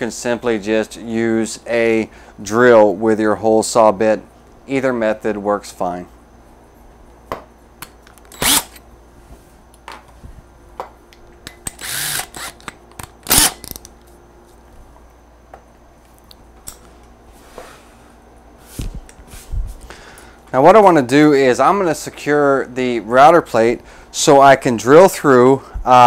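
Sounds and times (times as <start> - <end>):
drill chuck clicks: 8.1 - 8.8
cordless drill bursts: 8.3 - 8.8, 11.7 - 12.7, 13.3 - 13.7.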